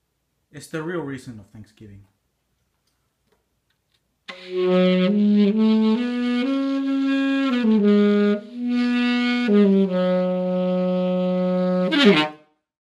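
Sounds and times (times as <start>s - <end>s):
wind instrument held notes: 4.3s - 12.4s.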